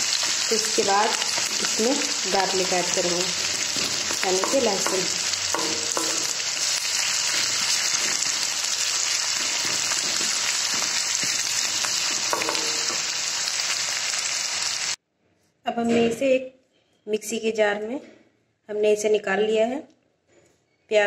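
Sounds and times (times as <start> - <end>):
onions sizzling in hot oil: 0.0 - 15.0
wooden spatula scraping and tapping: 3.4 - 13.2.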